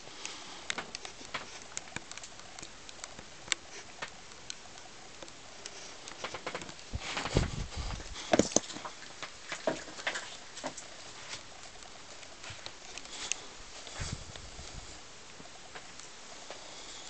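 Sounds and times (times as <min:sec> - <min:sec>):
light ticks: 0:00.0 - 0:07.3, 0:08.5 - 0:17.0
footsteps in a cluttered loft: 0:05.6 - 0:11.6, 0:12.2 - 0:15.1
heavy low thuds: 0:06.9 - 0:08.1.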